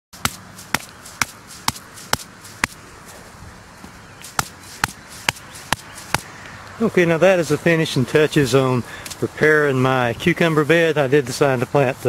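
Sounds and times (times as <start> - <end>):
wooden stake being struck: 0.2 - 2.8, 3.8 - 6.3.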